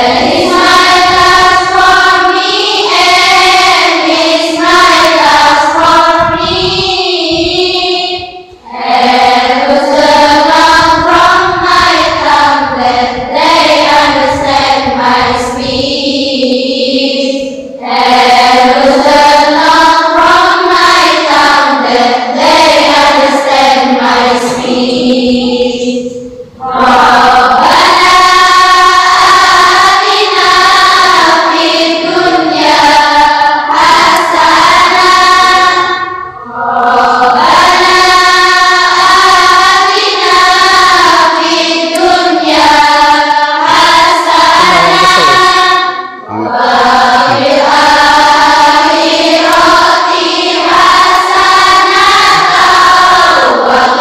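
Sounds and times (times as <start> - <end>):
voices singing long held notes: 0.0 - 54.0.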